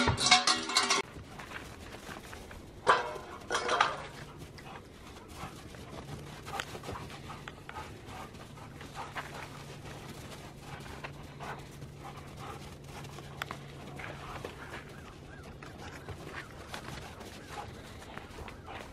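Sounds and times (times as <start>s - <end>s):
dogs panting: 0.0s - 18.9s
dogs scuffling in snow: 1.1s - 18.9s.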